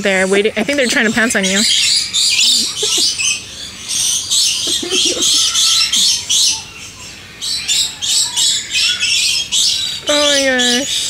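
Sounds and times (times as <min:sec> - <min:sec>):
parrots screeching: 0:01.3 - 0:11.0.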